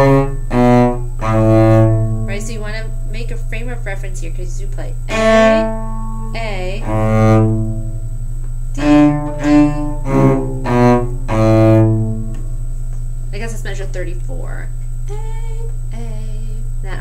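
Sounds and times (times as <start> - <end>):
bowed cello notes: 0.0 - 12.6.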